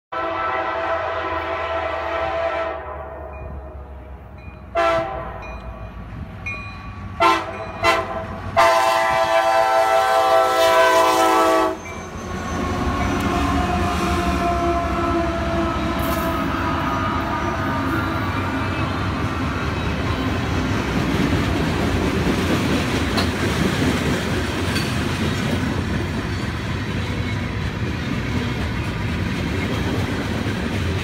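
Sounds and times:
train air horn: 0:00.1 - 0:04.0, 0:04.7 - 0:05.8, 0:07.2 - 0:19.6
steel wheels on rail: 0:03.2 - 0:31.0
diesel engines rumbling: 0:03.4 - 0:31.0.

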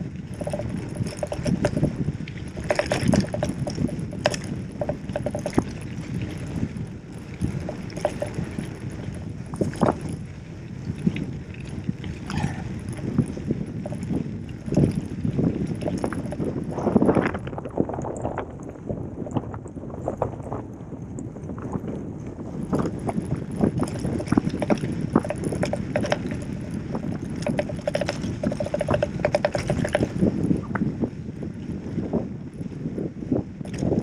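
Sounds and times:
freehub ticking: 0:00.0 - 0:18.8, 0:22.6 - 0:30.8
bike rattling over bumps: 0:00.0 - 0:34.0.

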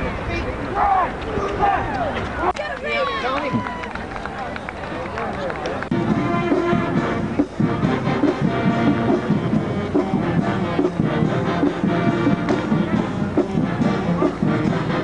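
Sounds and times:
marching band playing: 0:05.9 - 0:15.0.

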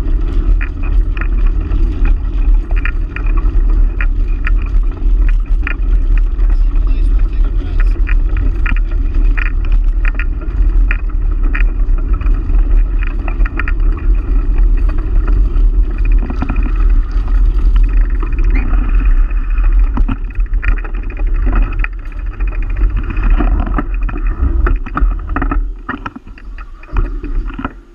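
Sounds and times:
bicycle tyres rolling on gravel: 0:00.0 - 0:27.9
crunches and rattles: 0:00.0 - 0:27.9
wind buffeting microphone: 0:00.0 - 0:27.9.

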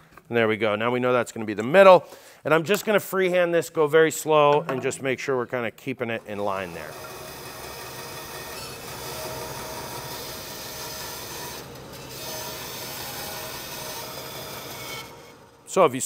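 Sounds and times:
bandsaw cutting wood: 0:06.2 - 0:15.8
bandsaw motor hum: 0:06.2 - 0:15.9.

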